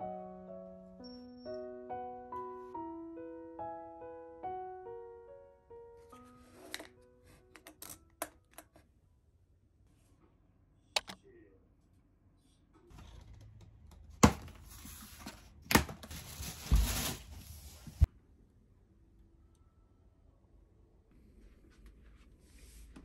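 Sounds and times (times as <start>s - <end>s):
cardboard and plastic rustling: 14.2s - 18.1s.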